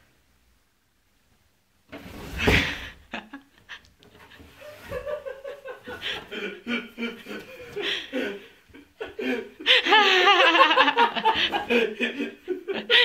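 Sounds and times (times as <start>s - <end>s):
laughter: 3.1s - 13.0s.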